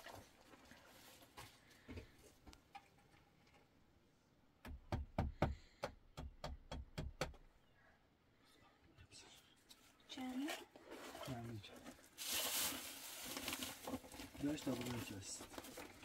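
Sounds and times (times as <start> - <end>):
hammer knocking a nail: 4.6 - 7.5.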